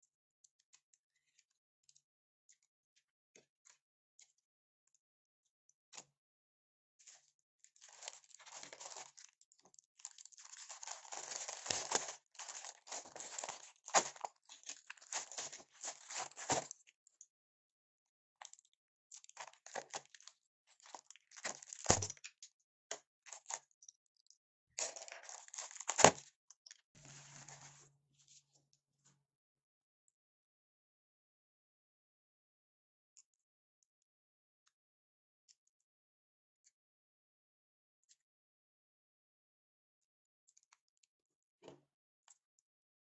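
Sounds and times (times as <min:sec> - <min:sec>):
plastic packaging crinkling: 0:07.8 - 0:16.8, 0:19.3 - 0:22.1, 0:24.8 - 0:26.2.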